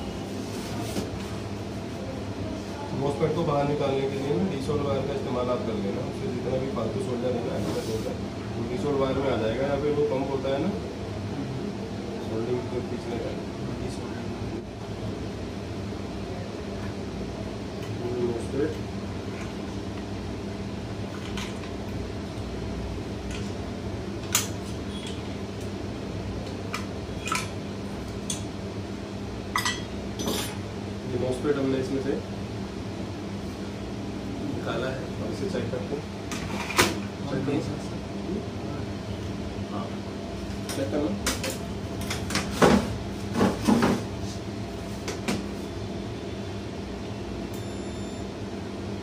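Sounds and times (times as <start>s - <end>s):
steady low hum: 0.0s - 49.0s
faint high multimeter beep: 47.5s - 48.4s.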